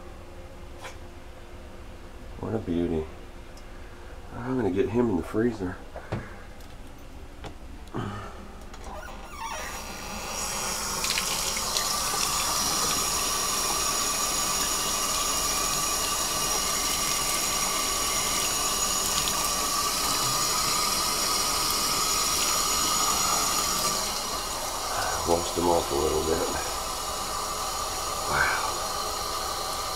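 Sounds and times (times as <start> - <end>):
water pouring into bathtub: 9.9 - 27.3.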